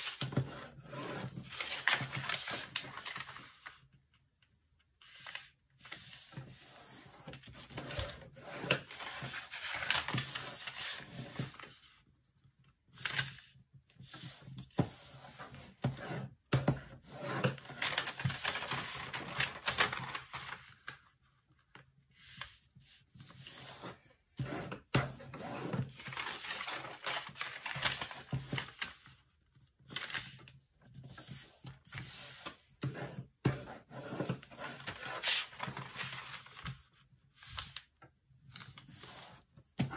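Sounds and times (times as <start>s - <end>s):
paper rustling and crinkling: 0.0s - 4.0s, 5.0s - 15.9s, 16.9s - 39.9s.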